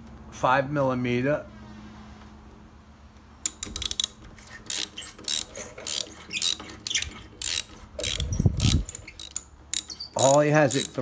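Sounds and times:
ratchet wrench clicking: 3.4s - 11.0s.

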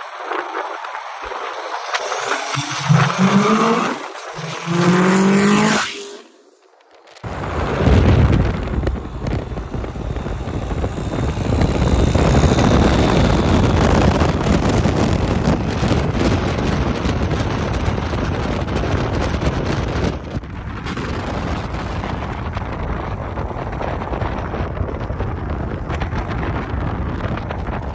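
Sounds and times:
road noise: 0.0s - 27.9s
car engine: 0.8s - 6.5s, 7.2s - 27.8s
wind buffeting microphone: 7.2s - 27.9s.

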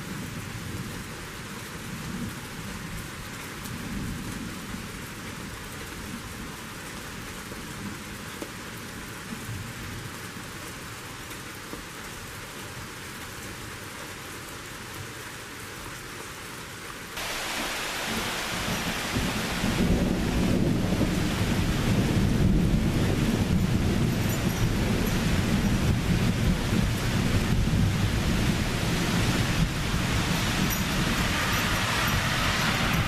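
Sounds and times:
steady rain: 0.0s - 33.0s
rolling thunder: 17.2s - 33.0s.

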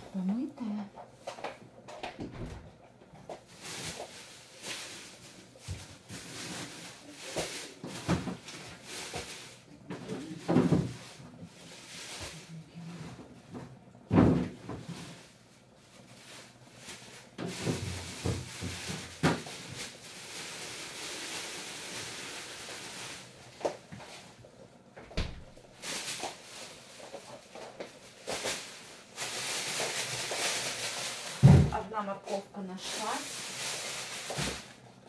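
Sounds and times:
steady hiss: 14.9s - 31.8s.

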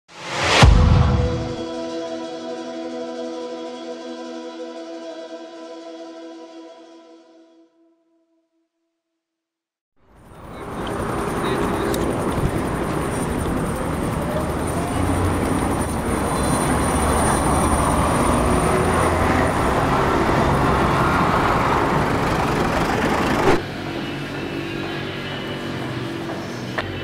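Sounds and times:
short hit: 0.3s - 1.7s
road traffic roar: 10.0s - 27.0s.

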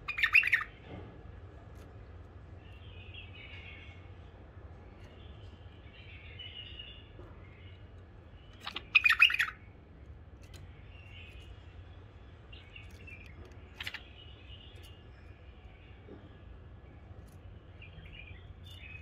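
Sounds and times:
bird chirping and chattering: 0.0s - 0.8s, 4.9s - 19.0s.

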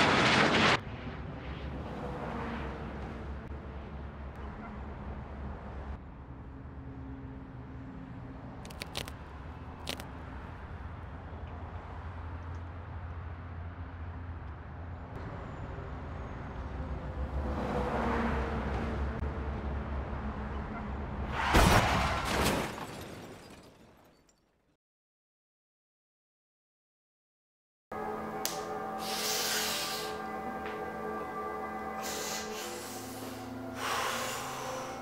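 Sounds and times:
road traffic rumble: 0.0s - 21.5s, 28.0s - 35.0s
sharp clicks: 8.6s - 9.2s.

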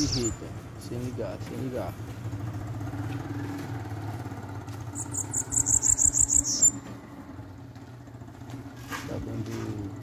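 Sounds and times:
bird singing high trill: 0.0s - 0.4s, 5.0s - 6.8s
engine idling hum: 0.0s - 10.0s.

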